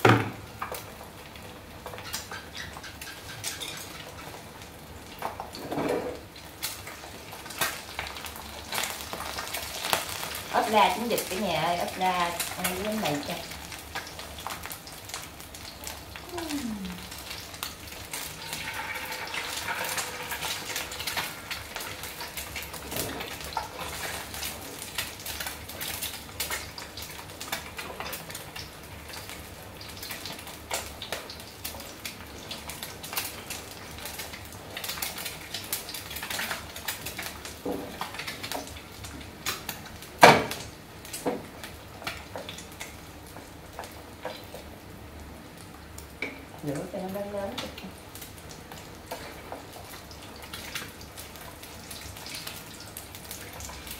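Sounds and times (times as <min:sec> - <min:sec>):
eggs sizzling in oil: 0:00.0 - 0:53.9.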